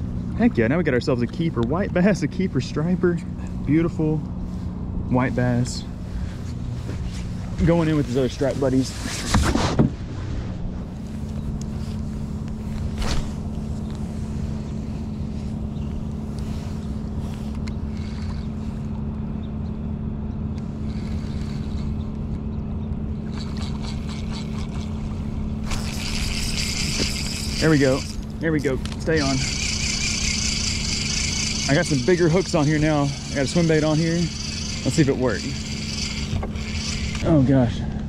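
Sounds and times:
boat motor hum: 0:00.0 - 0:38.0
fish splashing: 0:23.2 - 0:28.3.

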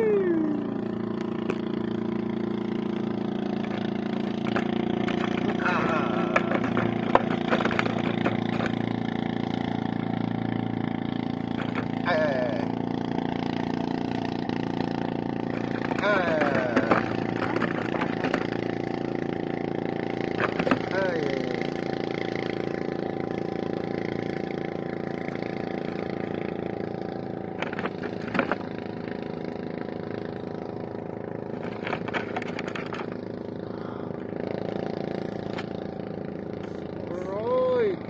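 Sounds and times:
small boat engine running: 0:00.0 - 0:38.0
sharp clicks and knocks: 0:02.9 - 0:09.0, 0:11.5 - 0:12.0, 0:15.5 - 0:18.9, 0:20.2 - 0:21.0, 0:27.5 - 0:28.7, 0:31.6 - 0:33.2.

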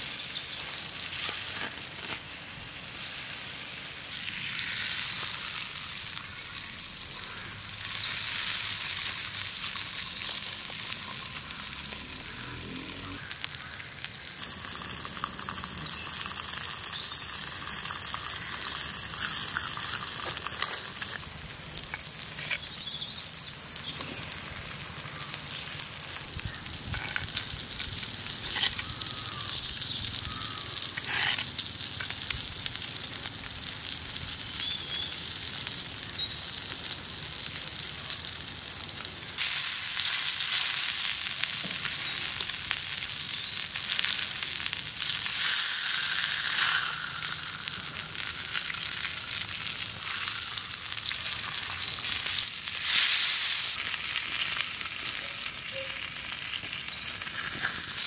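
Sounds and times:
meat sizzling on hot stone: 0:00.0 - 0:58.0
fat popping and crackling: 0:13.0 - 0:58.0.

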